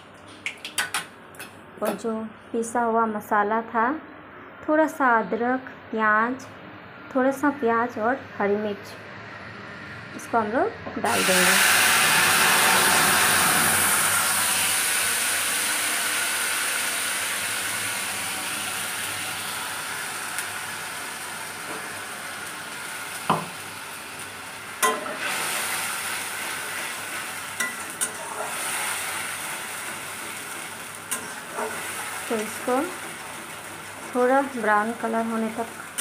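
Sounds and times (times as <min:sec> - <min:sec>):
paste sizzling in hot oil: 0:11.1 - 0:36.0
metal utensils clinking on pan: 0:24.8 - 0:25.2.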